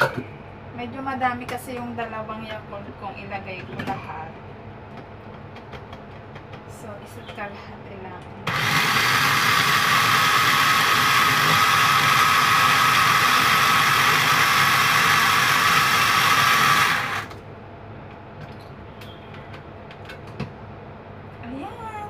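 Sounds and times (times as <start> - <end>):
food chopper motor whirring: 8.4 - 17.4.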